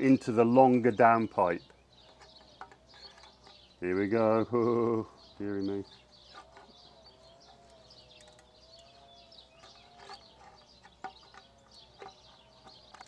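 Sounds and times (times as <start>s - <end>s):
faint birdsong: 0.0s - 13.0s
downspout crimper clicks and crunches: 7.5s - 9.0s.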